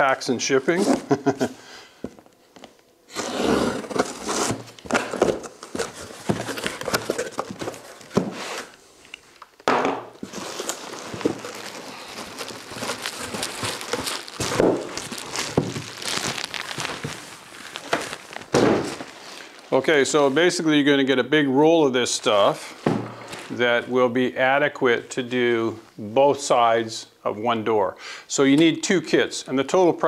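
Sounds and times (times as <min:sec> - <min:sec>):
cardboard flaps scraping and rustling: 0:03.1 - 0:08.8, 0:10.2 - 0:19.6
plastic wrapping crinkling: 0:03.7 - 0:09.6, 0:10.2 - 0:20.4.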